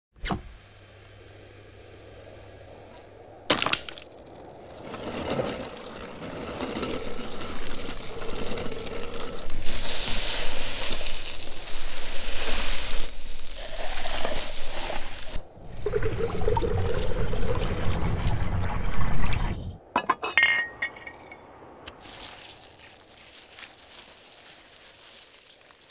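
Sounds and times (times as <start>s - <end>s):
ice shaving machine crunching: 5.4s - 12.2s, 21.9s - 25.9s
ice clinking in glass: 20.0s - 21.4s.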